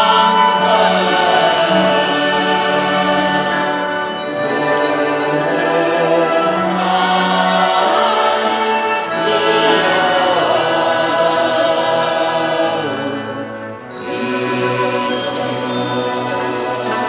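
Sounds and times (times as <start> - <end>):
slow ambient music: 0.0 - 17.0.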